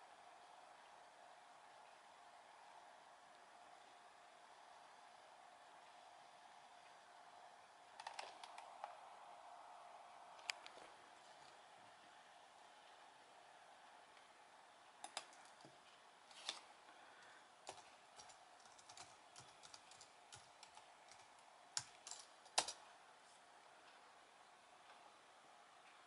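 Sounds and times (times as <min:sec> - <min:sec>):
faint steady hum: 0:00.0 - 0:26.0
computer keyboard key clicks: 0:15.0 - 0:15.5.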